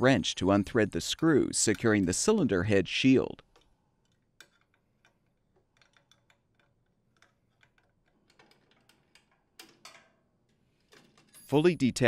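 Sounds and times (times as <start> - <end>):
wrench clicking on screws: 3.5 - 11.4.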